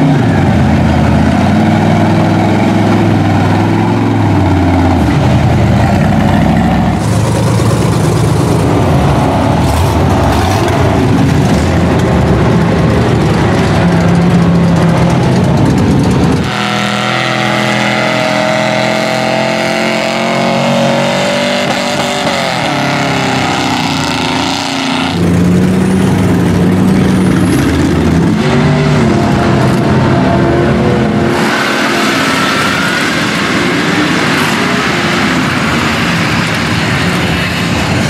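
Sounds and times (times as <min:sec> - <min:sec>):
truck engines revving: 0:00.0 - 0:38.0.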